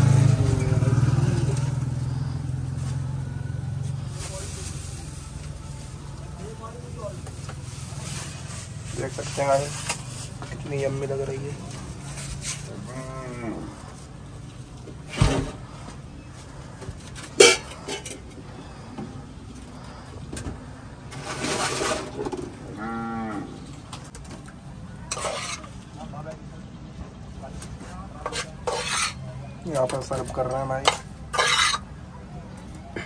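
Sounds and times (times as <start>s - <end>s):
cow mooing: 12.9s - 13.7s, 22.7s - 23.6s
short scraping noises: 21.1s - 22.4s, 25.1s - 25.8s, 27.7s - 29.3s, 30.8s - 31.9s.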